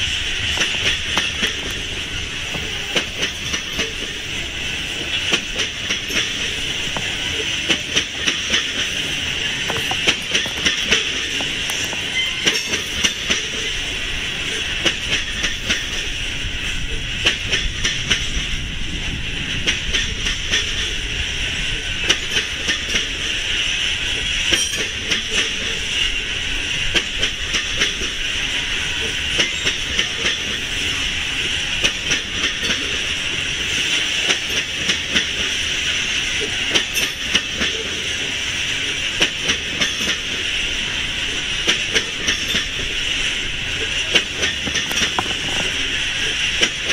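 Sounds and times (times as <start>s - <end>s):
wheels rumbling on rail: 0.0s - 46.9s
wheel clicks over rail joints: 0.5s - 4.2s, 5.0s - 13.6s, 44.1s - 45.9s.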